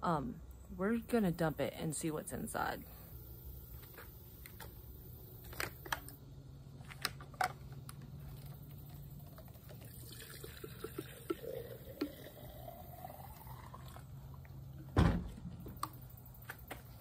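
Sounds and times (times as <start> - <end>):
fuel pouring into glass jar: 9.5 - 14.2.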